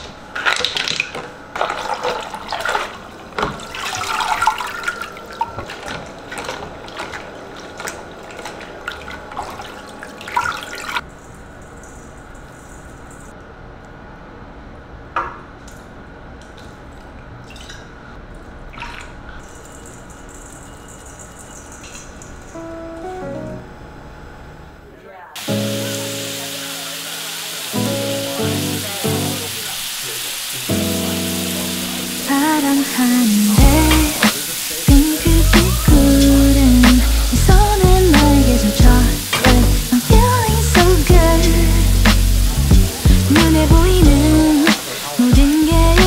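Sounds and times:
faint steady hiss: 24.9s - 46.0s.

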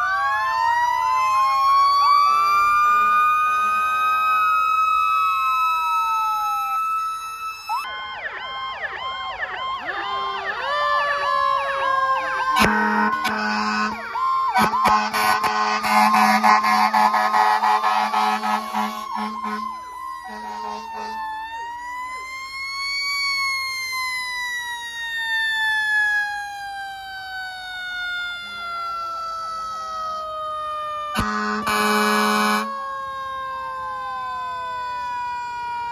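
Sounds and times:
fire engine sirens wailing: 0.0s - 35.9s
fire trucks driving past: 0.0s - 35.9s
low horn blasts: 12.5s - 21.3s, 31.2s - 32.7s.

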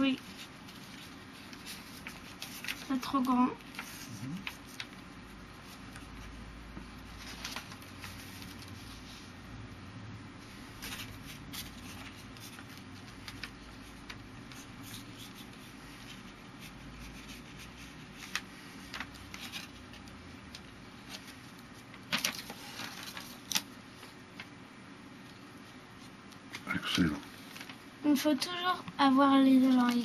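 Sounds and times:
paper being folded and creased: 0.0s - 9.3s, 10.5s - 24.5s, 29.5s - 30.0s
paper rustling: 0.0s - 9.3s, 10.4s - 24.6s, 26.0s - 28.3s, 29.0s - 30.0s
sharp paper crackle: 0.0s - 9.3s, 10.5s - 24.6s, 26.4s - 28.4s, 29.0s - 30.0s.

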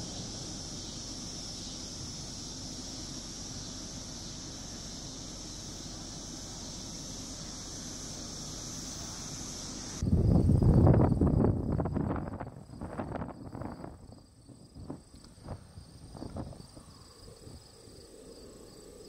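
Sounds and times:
high-pitched hiss: 0.0s - 19.0s
wind rumbling on microphone: 10.0s - 18.9s.

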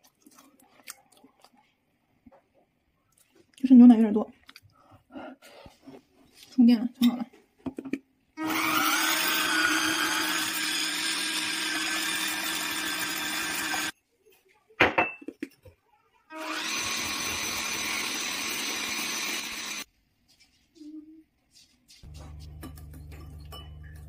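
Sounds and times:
electric hand mixer whine: 8.4s - 13.9s, 16.3s - 19.9s.

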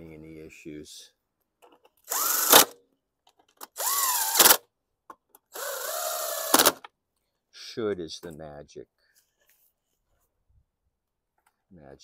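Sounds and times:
impact driver running: 2.1s - 2.8s, 3.8s - 4.6s, 5.6s - 6.8s.

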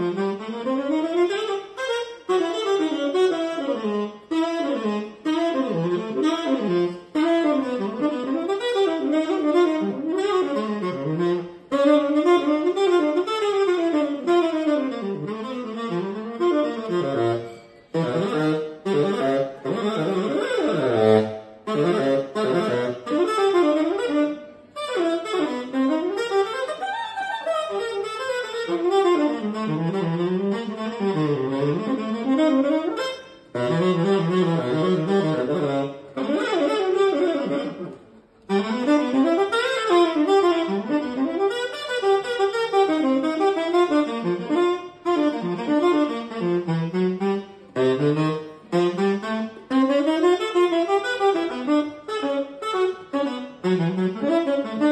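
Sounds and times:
tenor saxophone playing jazz: 0.0s - 54.9s.

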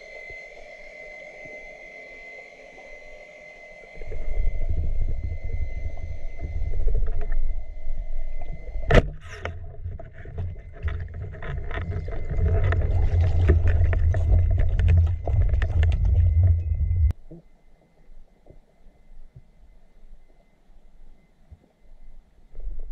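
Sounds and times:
underwater rumbling wash: 4.0s - 17.1s.

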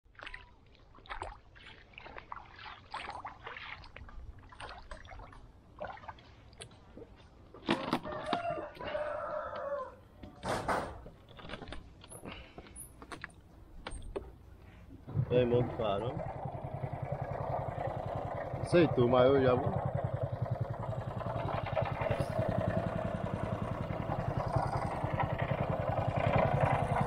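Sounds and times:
footsteps squelching in mud: 0.1s - 9.0s.

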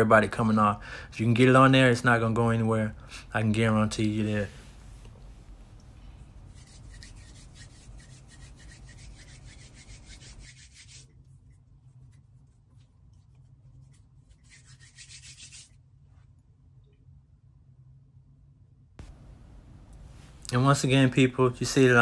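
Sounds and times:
hands rubbing: 4.8s - 15.8s.

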